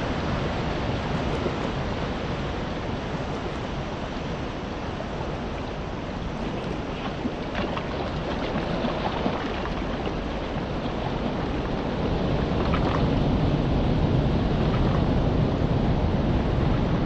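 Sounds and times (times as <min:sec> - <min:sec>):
wind buffeting microphone: 0:00.0 - 0:17.0
small waves lapping on pebbles: 0:06.2 - 0:13.5.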